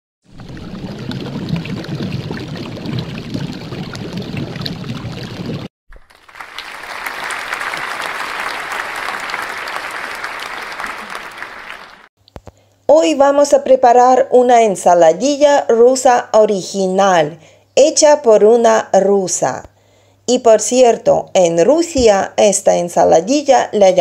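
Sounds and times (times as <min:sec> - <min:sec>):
pouring water-like noise: 0:00.2 - 0:12.1
applause: 0:05.9 - 0:12.1.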